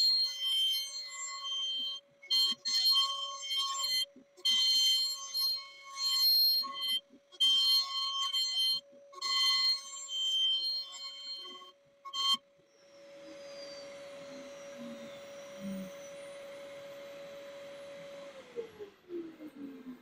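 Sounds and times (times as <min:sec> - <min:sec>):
router spindle whining: 0:12.3 - 0:20.0.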